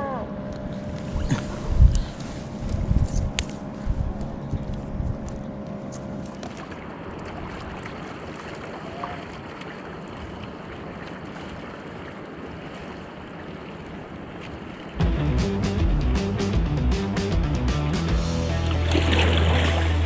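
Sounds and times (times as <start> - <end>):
wind and sea noise: 0.0 - 15.0
loud music with a beat: 15.0 - 18.9, 19.5 - 20.0.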